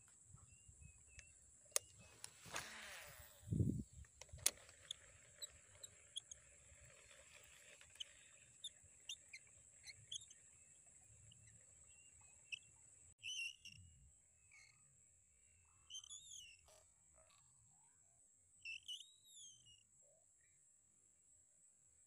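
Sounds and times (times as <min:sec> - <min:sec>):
fishing reel click: 0:01.1 - 0:10.3
high insect drone: 0:02.0 - 0:03.9
frogs chirping: 0:03.6 - 0:13.9.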